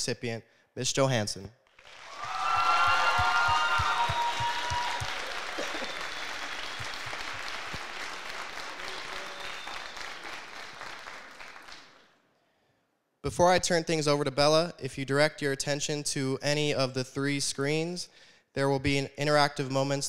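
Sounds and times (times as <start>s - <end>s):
cheers: 1.8s - 11.9s
audience applauding: 1.8s - 12.1s.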